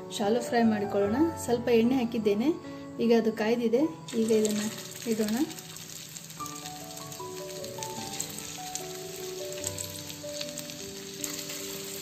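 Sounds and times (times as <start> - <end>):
music of held single notes: 4.0 - 12.0
oil sizzling in a frying pan: 4.1 - 12.0.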